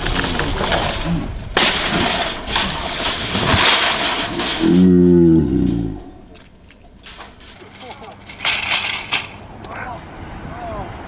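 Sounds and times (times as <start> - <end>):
splashing and rattling cart: 0.0 - 4.6, 7.0 - 9.5.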